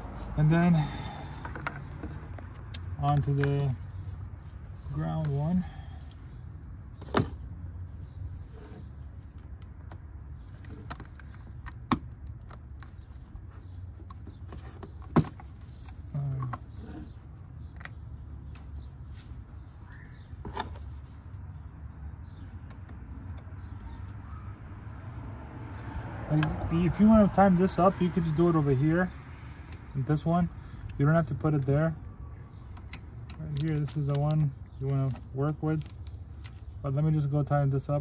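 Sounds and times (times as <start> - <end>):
sharp clicks and metallic rattles: 32.7 - 36.7.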